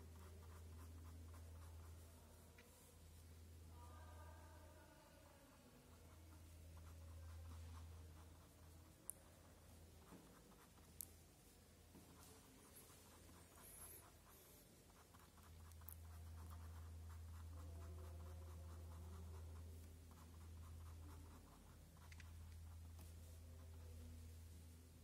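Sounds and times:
pen scratching on paper: 0:12.1 - 0:23.0.

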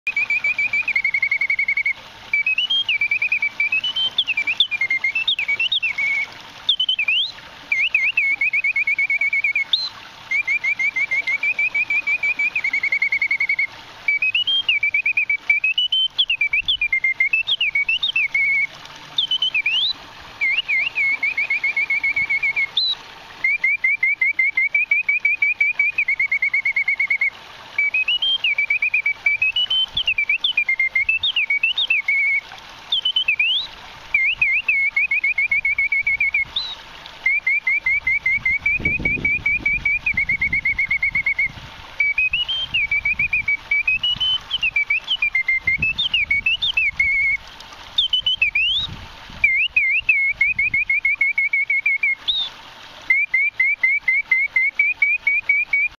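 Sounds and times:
mechanical bird whistling trills: 0:00.1 - 0:47.4, 0:48.0 - 0:52.5, 0:53.1 - 0:55.9.

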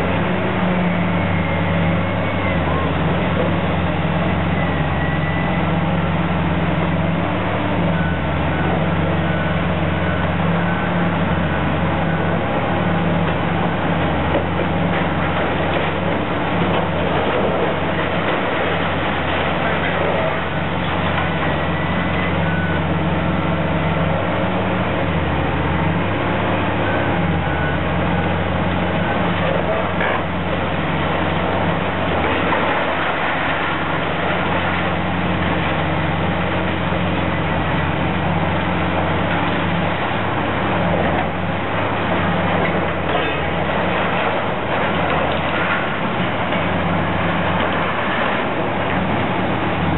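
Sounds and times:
excavator diesel engine running: 0:00.0 - 0:49.9
debris crunching and clattering: 0:12.2 - 0:22.8, 0:27.6 - 0:49.9.

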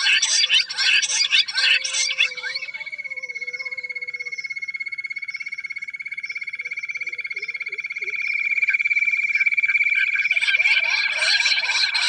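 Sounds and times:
quail call rapid pulsing trill: 0:09.6 - 0:12.0.

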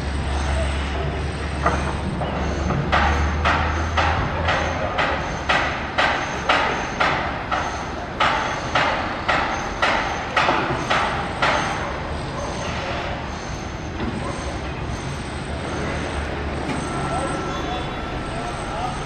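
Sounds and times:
sharp knocks: 0:01.6 - 0:11.8.

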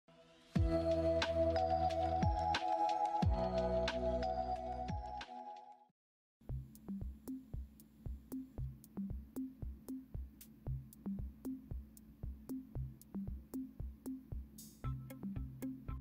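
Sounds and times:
drum machine beat: 0:06.4 - 0:16.0.

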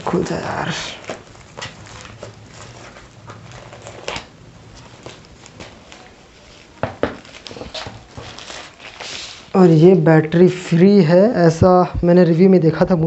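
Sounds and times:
plastic sleeve rustling and crinkling: 0:00.0 - 0:09.9.

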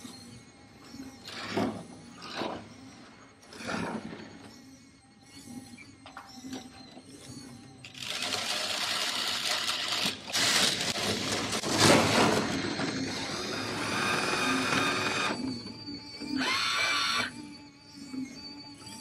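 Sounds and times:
electric motors whirring: 0:00.0 - 0:19.0
plastic cars rattling on track: 0:07.9 - 0:15.4.

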